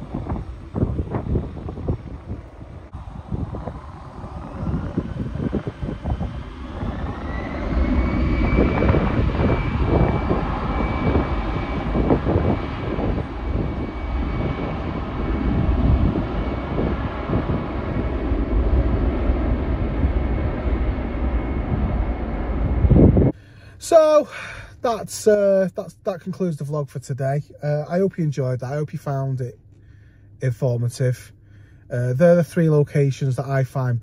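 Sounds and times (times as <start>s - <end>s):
wind buffeting microphone: 0.0s - 23.4s
jet engine whine: 0.0s - 26.7s
jet engine rumble: 0.0s - 34.0s.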